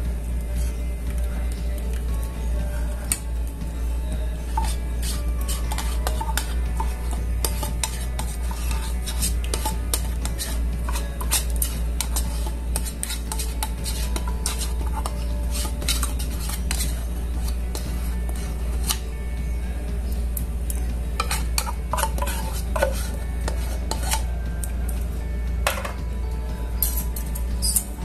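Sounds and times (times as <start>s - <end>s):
low steady hum: 0.0s - 28.0s
metal spoon scraping tin can: 4.4s - 19.0s, 21.2s - 24.3s.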